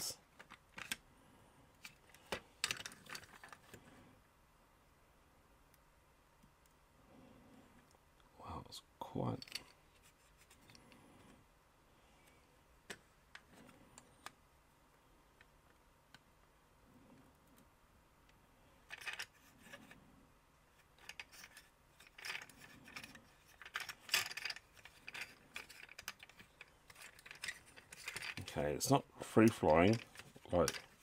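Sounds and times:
hard plastic toy wheels clicking: 29.4s - 31.0s.

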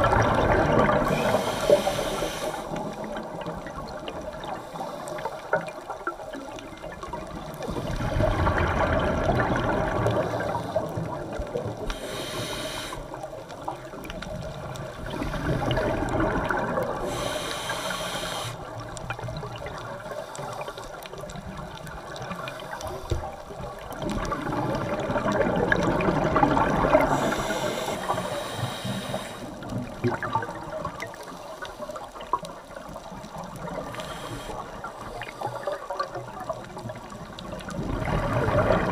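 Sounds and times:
exhaled bubbles rushing: 0.0s - 4.6s, 5.6s - 11.9s, 13.1s - 17.2s, 23.3s - 28.3s, 29.5s - 31.3s, 35.6s - 38.9s
regulator inhale hiss: 1.0s - 3.1s, 4.4s - 5.8s, 10.1s - 11.2s, 11.8s - 13.3s, 17.0s - 18.8s, 20.0s - 21.1s, 22.3s - 23.4s, 27.0s - 29.7s, 33.8s - 35.8s.

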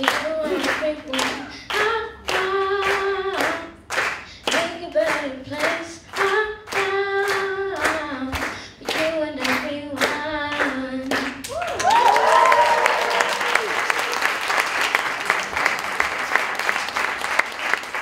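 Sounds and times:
boy singing into a microphone: 0.0s - 11.4s
hands clapping: 0.0s - 18.0s.

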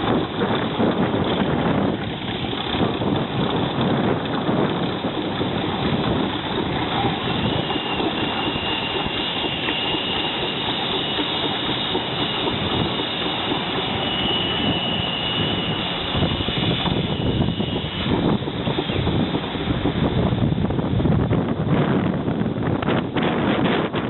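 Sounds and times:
steam traction engine clatter: 0.0s - 24.0s
thin high whine: 6.9s - 19.2s.

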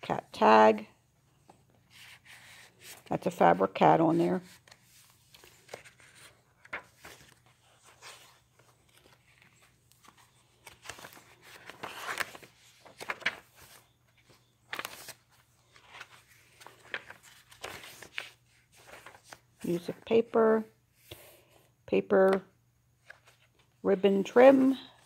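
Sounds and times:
paper pages rustling: 4.1s - 20.0s, 23.0s - 23.8s.

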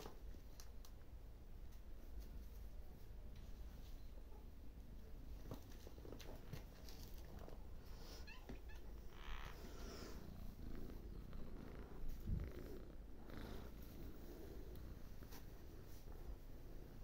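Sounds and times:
cat purring: 5.2s - 17.0s.

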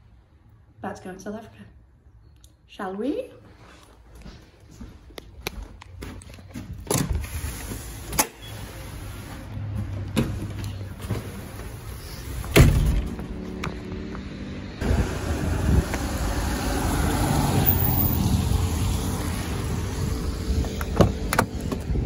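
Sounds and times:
street traffic rumble: 0.0s - 22.0s
footsteps: 3.4s - 7.2s
front door opening: 6.4s - 13.8s.

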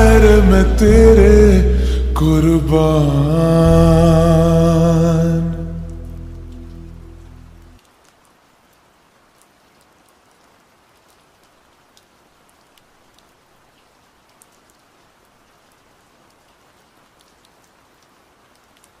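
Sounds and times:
rain hiss: 0.0s - 19.0s
raindrop ticks: 5.8s - 14.9s, 15.6s - 19.0s.

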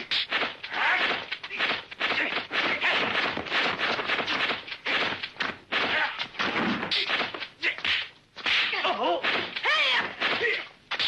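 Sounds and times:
punch and kick impacts: 0.0s - 11.0s.

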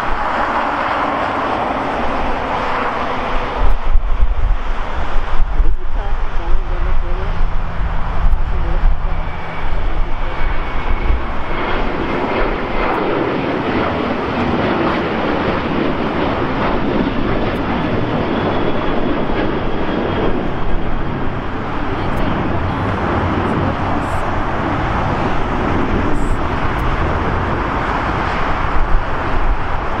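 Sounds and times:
jet engine roar: 0.0s - 30.0s
faint high whine: 5.4s - 11.9s.

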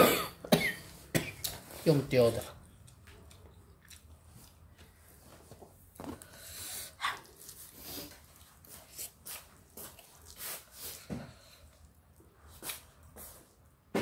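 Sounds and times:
person chewing and smacking: 2.6s - 5.0s.

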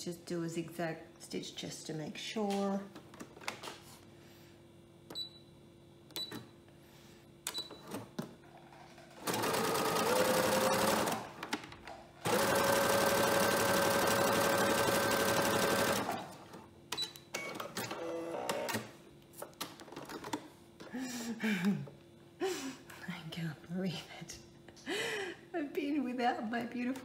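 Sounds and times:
sewing machine stitching: 8.7s - 11.5s, 12.2s - 16.6s.

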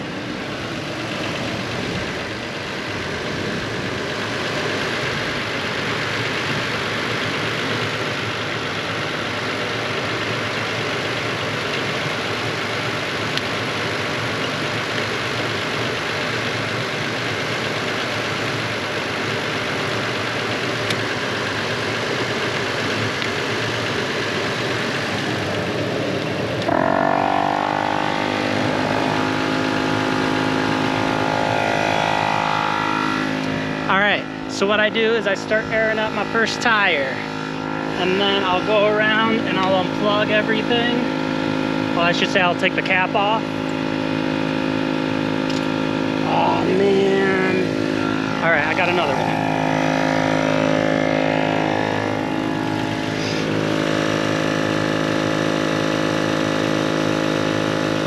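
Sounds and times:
air compressor motor whine and hum: 0.0s - 58.0s
steady rushing noise: 24.6s - 44.4s, 45.0s - 55.0s.

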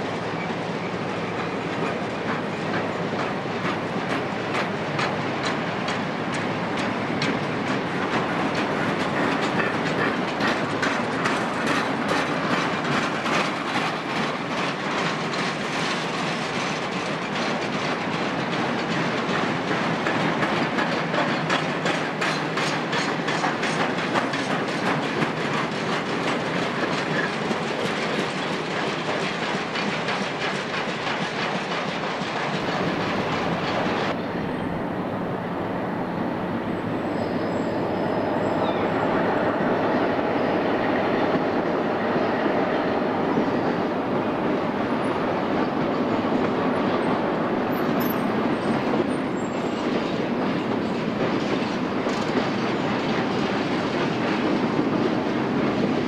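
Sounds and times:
distant train: 0.0s - 56.0s
wheels clicking over rail joints: 1.3s - 34.6s, 45.0s - 56.0s.

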